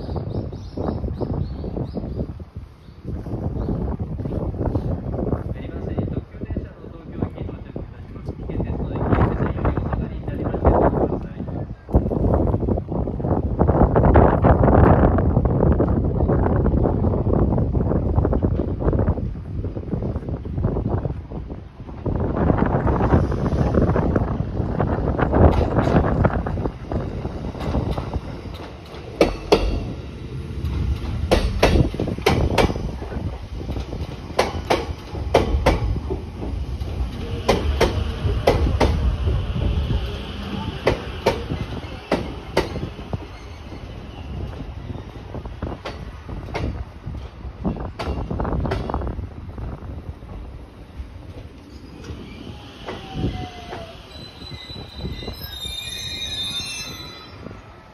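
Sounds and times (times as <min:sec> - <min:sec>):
electric train rumbling past: 0:00.0 - 0:57.9
train wheels clicking over rail joint: 0:30.6 - 0:32.8
high-pitched wheel squeal: 0:51.7 - 0:57.6.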